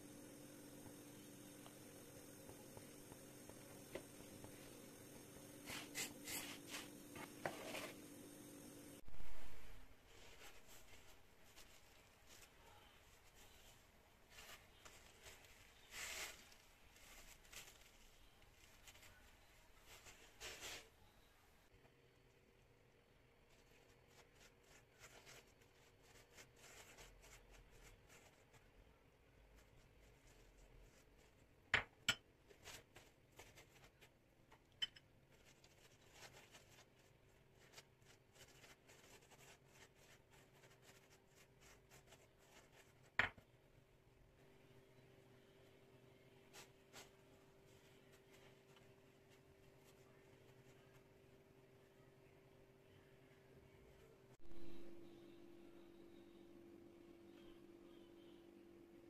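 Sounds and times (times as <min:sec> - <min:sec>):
faint steady hum: 0:00.0 - 0:59.0
pastry brush swishing: 0:02.6 - 0:08.0
wooden spatula scraping pan: 0:05.7 - 0:08.0.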